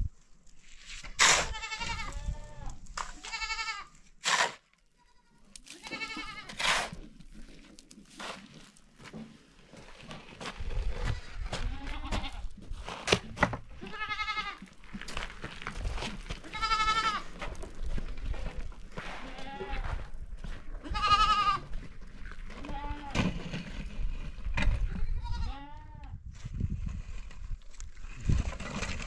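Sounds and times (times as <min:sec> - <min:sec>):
shovel scraping soil into wheelbarrow: 0:00.6 - 0:01.7, 0:04.2 - 0:04.7, 0:05.7 - 0:07.2, 0:08.1 - 0:08.8, 0:12.7 - 0:13.5
goats bleating: 0:01.4 - 0:04.0, 0:05.0 - 0:06.6, 0:11.0 - 0:12.4, 0:13.8 - 0:14.7, 0:16.4 - 0:17.3, 0:19.2 - 0:20.0, 0:20.8 - 0:21.8.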